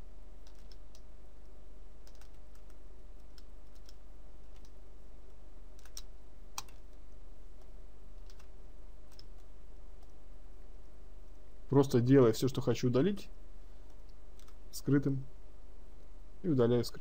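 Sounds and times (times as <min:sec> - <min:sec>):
low electrical hum: 0:00.0 - 0:17.0
keyboard and mouse clicks: 0:00.4 - 0:01.1, 0:02.0 - 0:04.8, 0:05.8 - 0:07.0, 0:07.6 - 0:08.5, 0:09.1 - 0:10.2, 0:14.4 - 0:14.6.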